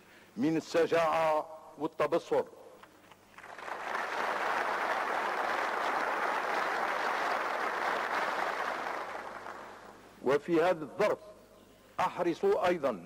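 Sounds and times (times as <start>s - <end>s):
audience applauding: 3.3s - 10.0s.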